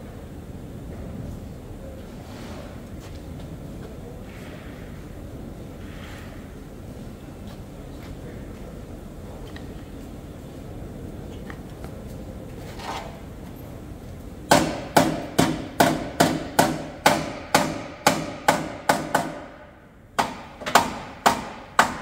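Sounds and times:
hammer striking metal: 14.5 - 19.6, 20.2 - 22.0.

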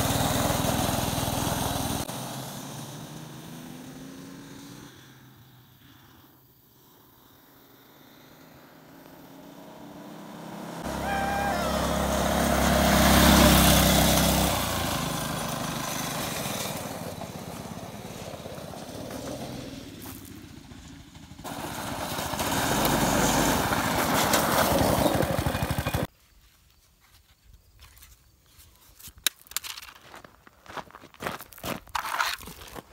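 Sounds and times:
go-kart engine running: 0.0 - 4.4, 9.6 - 26.1
tires on gravel: 7.6 - 26.2, 29.0 - 32.9.

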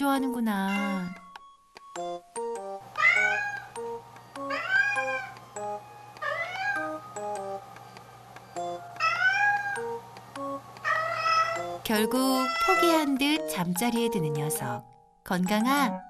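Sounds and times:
cat meowing: 0.6 - 1.3, 3.0 - 3.8, 4.4 - 5.4, 6.2 - 7.0, 9.0 - 10.0, 10.8 - 11.7, 12.3 - 13.1.

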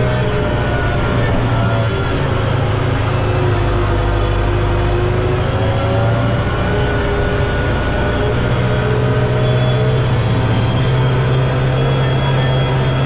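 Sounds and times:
tractor diesel engine drone: 0.0 - 13.0.

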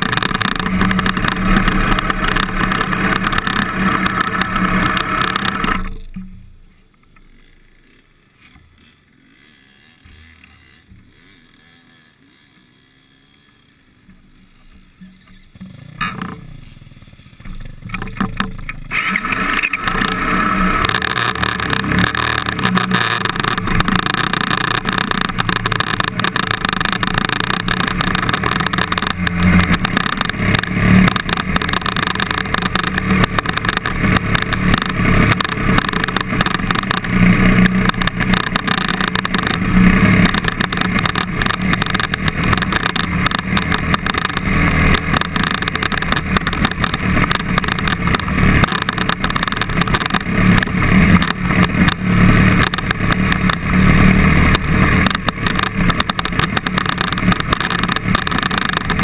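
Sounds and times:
motorbike engine revving: 0.0 - 59.0.

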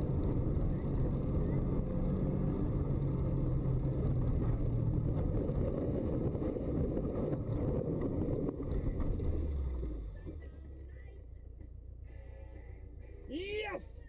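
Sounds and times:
car engine running: 0.0 - 14.0
rumble of snow striking car: 2.7 - 10.6.

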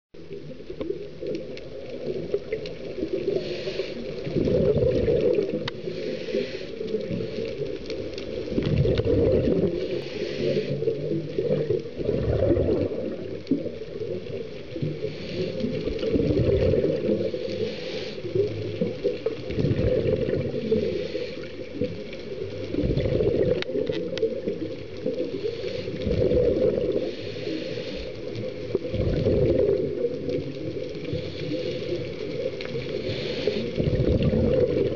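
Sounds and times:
exhaled bubbles rumbling underwater: 0.2 - 34.9
regulator hiss on inhale: 2.9 - 4.4, 5.3 - 8.6, 9.4 - 11.4, 14.0 - 19.5, 20.4 - 22.4, 24.1 - 28.8, 30.0 - 34.1.

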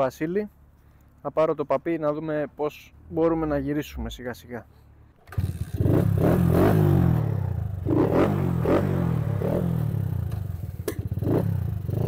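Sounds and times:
moped engine revving: 5.2 - 12.0.

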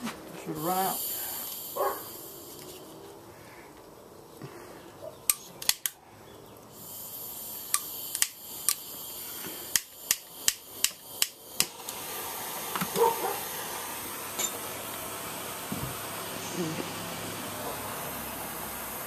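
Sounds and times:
gas hissing from torch: 0.5 - 3.0, 6.7 - 19.0
lighter clicking: 7.6 - 11.8.

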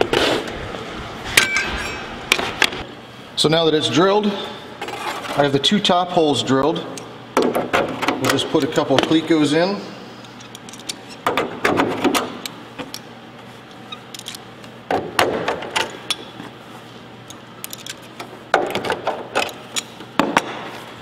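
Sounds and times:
sharp metallic clicks and rattles: 17.6 - 19.9.

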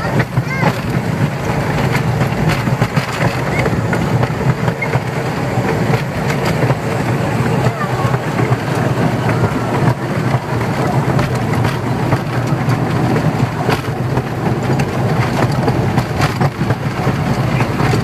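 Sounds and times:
carriage rolling low rumble: 0.0 - 18.0
wheels clicking on rails: 0.0 - 18.0.

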